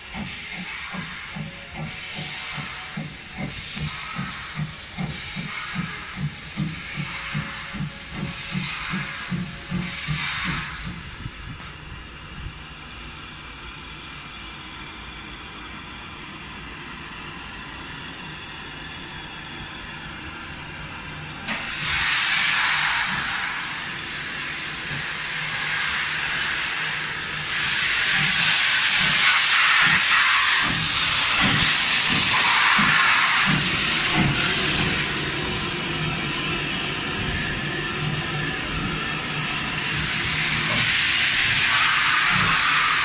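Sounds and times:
loud steam hiss: 0.0 - 11.9, 20.8 - 43.0.

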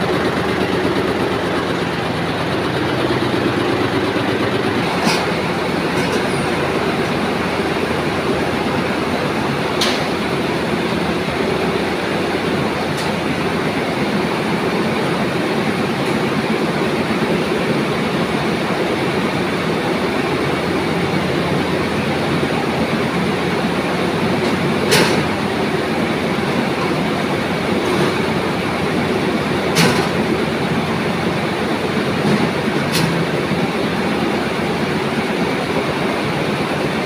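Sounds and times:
spinning machinery din: 0.0 - 13.0.

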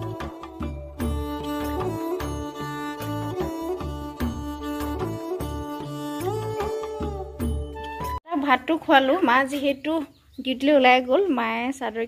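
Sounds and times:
music with steady bass beat: 0.0 - 8.2.

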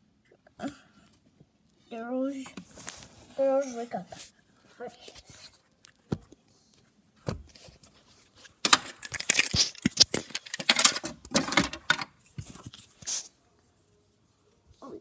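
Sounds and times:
plastic toys clicking and clattering: 8.6 - 12.2.

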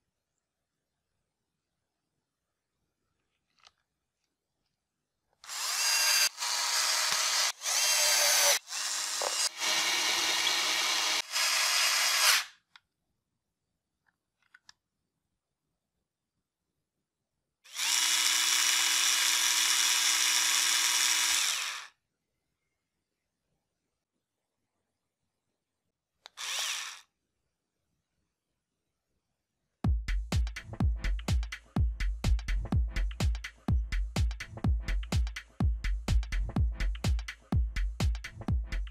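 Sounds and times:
electric screwdriver motor whirring: 5.4 - 12.5, 17.7 - 21.9, 26.3 - 27.1.

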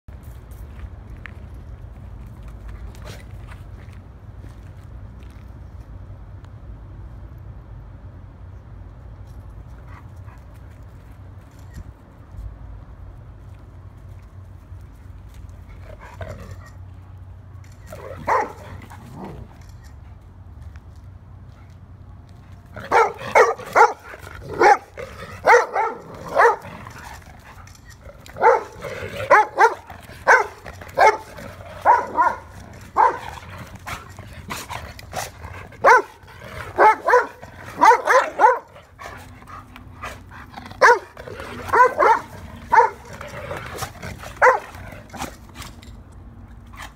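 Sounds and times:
dogs play-fighting: 2.2 - 5.4, 14.1 - 20.7, 21.4 - 46.9
dogs barking: 18.0 - 19.4, 22.8 - 27.2, 28.2 - 45.3.

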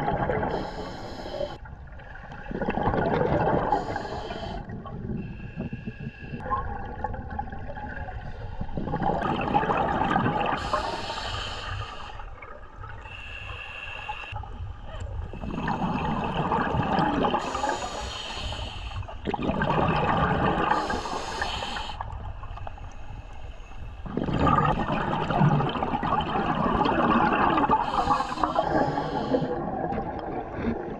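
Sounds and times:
exhaled bubbles rushing: 0.0 - 0.6, 1.8 - 4.0, 6.4 - 10.6, 15.3 - 17.6, 19.2 - 21.0, 24.0 - 30.9
low underwater hiss: 0.0 - 1.7, 3.6 - 6.5, 10.4 - 16.3, 16.9 - 19.2, 20.5 - 24.0, 27.5 - 30.9
regulator inhale hiss: 0.5 - 1.6, 3.7 - 6.4, 10.6 - 12.3, 13.0 - 14.4, 17.4 - 19.2, 20.7 - 24.0, 27.8 - 29.6.

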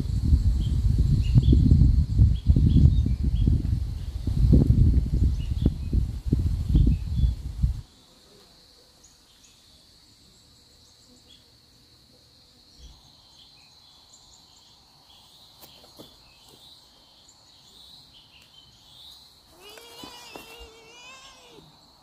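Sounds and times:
insect trill: 5.3 - 22.0
faint chirps: 6.8 - 22.0
cat meowing: 19.5 - 21.8.

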